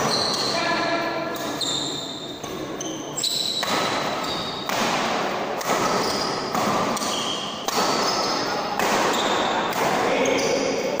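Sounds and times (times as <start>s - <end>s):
rackets hitting shuttlecock: 2.4s - 11.0s.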